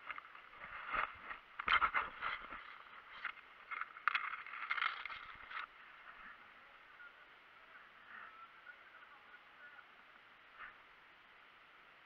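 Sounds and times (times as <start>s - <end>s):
grass and clothing rustling: 0.0s - 6.9s.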